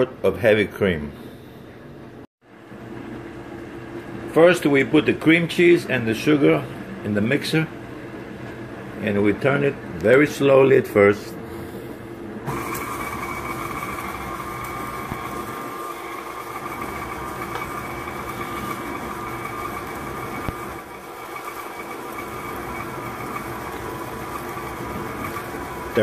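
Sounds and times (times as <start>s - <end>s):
stand mixer motor whine: 12.4s - 26.0s.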